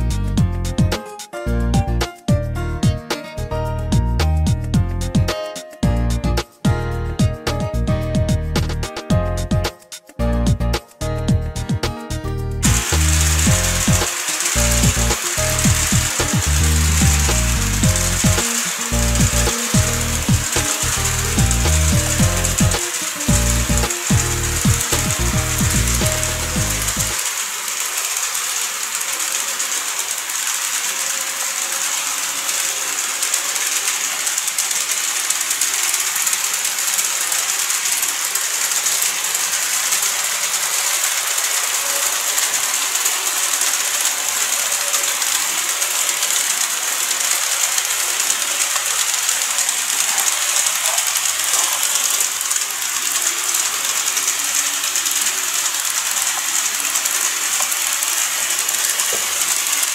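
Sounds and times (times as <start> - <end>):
high motor whine: 12.6 - 59.9
model train wheels rattling: 12.6 - 59.9.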